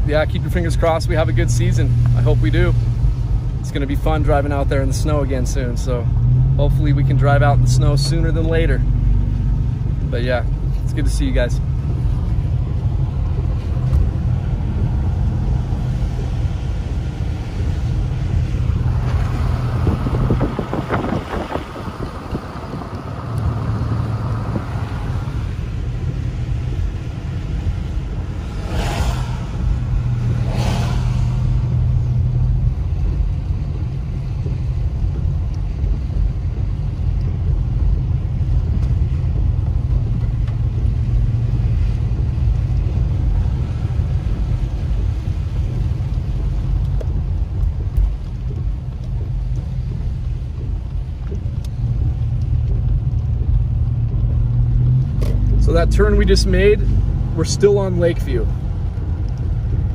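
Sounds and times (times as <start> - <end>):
car engine rumble: 0.0 - 59.9
tyres on wet road: 0.0 - 59.9
short swishes: 28.2 - 32.2
hiss: 28.5 - 31.8.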